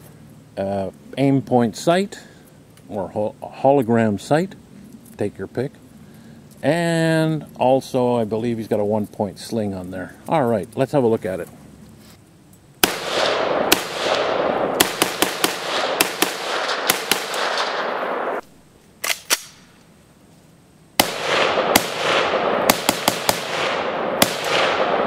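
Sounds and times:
rifle shots with rolling echo: 12.8s - 18.4s, 21.0s - 25.0s.

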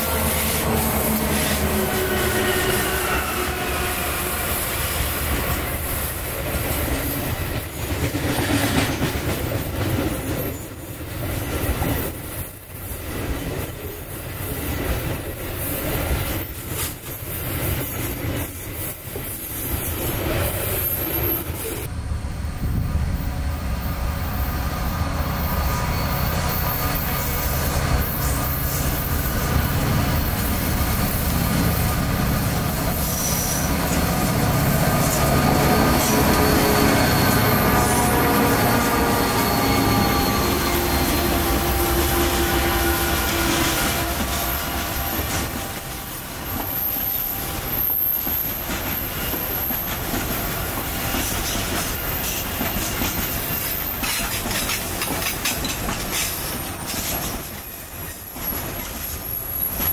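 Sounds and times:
diesel locomotive engine droning: 0.0s - 13.0s, 18.9s - 59.9s
freight train rolling past: 0.0s - 59.9s
squealing train wheels: 0.0s - 59.9s
wheels clattering on rail: 43.2s - 59.9s.

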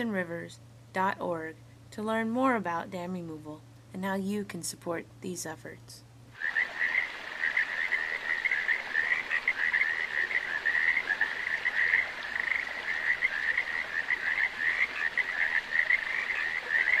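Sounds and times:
frogs trilling: 6.3s - 17.0s.

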